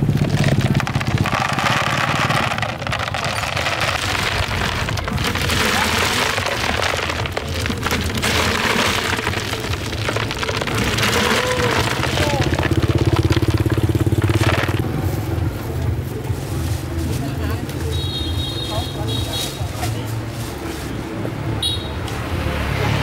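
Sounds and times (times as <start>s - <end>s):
snail shells clattering on plastic: 0.0s - 15.0s.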